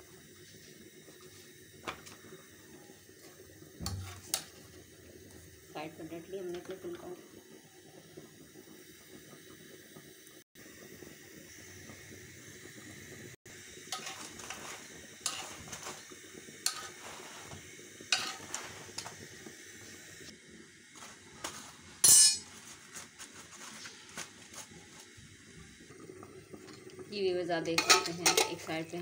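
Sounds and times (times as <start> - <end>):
metal utensils clinking on griddle: 13.9 - 16.0, 16.6 - 17.1, 18.1 - 19.2, 22.0 - 22.6, 27.7 - 28.8.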